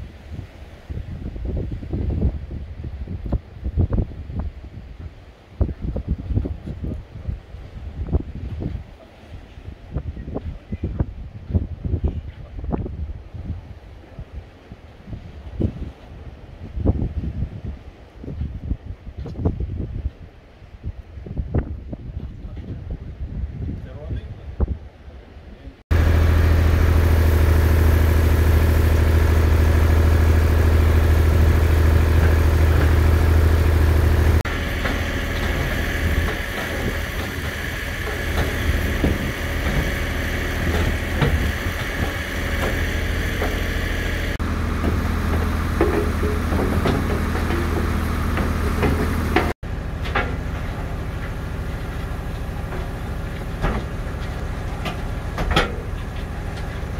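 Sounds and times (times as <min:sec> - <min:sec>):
auger drilling: 0:25.9 - 0:56.9
drill rig engine running: 0:25.9 - 0:56.9
knocks and rattles: 0:27.5 - 0:56.9.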